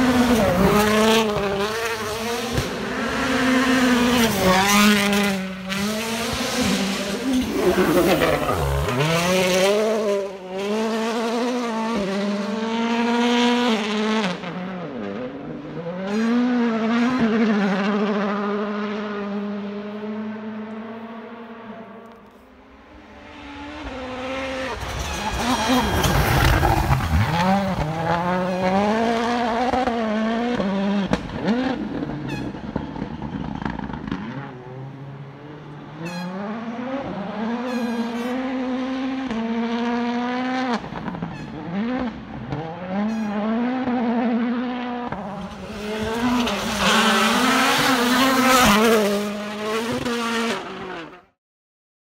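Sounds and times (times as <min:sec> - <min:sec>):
rally car engine revving: 0:00.0 - 0:51.4.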